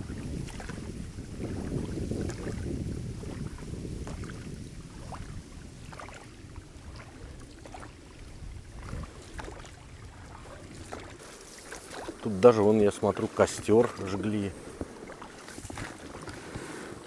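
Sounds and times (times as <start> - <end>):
oars splashing in water: 0.0 - 17.0
wind rumbling on microphone: 0.0 - 17.0.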